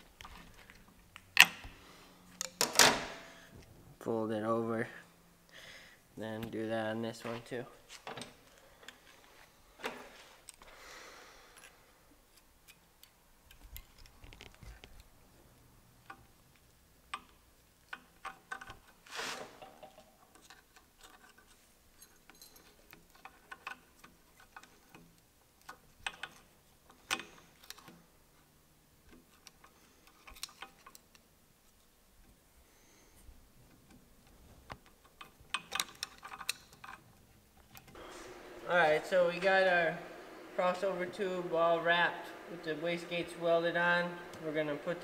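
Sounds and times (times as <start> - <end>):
scraping rustle: 19.0 - 19.6.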